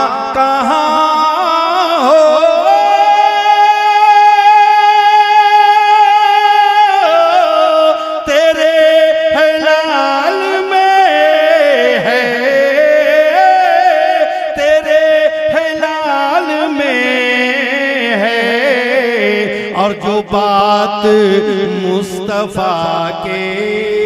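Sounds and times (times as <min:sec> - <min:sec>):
man singing solo: 0:00.0 - 0:24.0.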